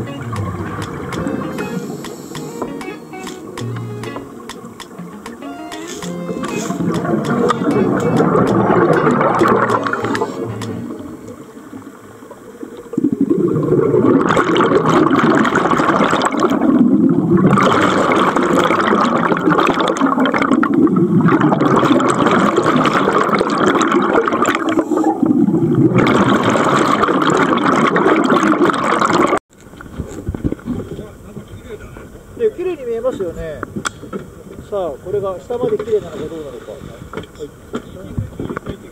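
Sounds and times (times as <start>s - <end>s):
air bubbling underwater: 0.0s - 2.7s, 6.3s - 11.7s, 12.8s - 29.4s.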